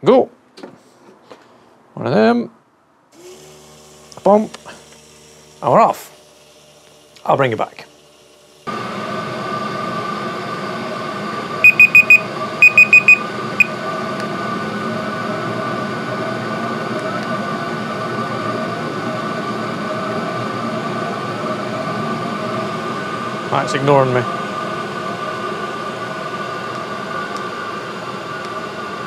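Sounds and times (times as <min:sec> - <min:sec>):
diesel heater humming and whining: 0:03.1 - 0:29.0
high electronic beeps: 0:11.6 - 0:13.7.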